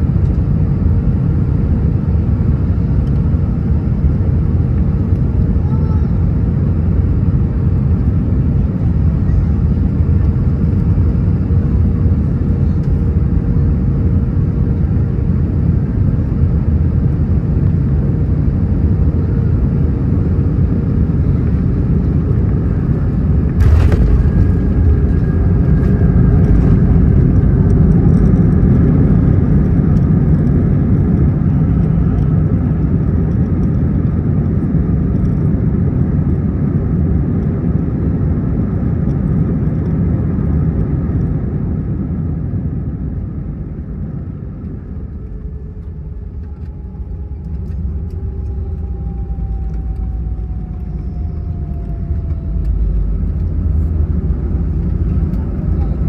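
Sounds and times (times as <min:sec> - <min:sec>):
jet cabin engine rumble: 0:00.0 - 0:56.0
falling engine whine: 0:17.1 - 0:36.4, 0:43.6 - 0:56.0.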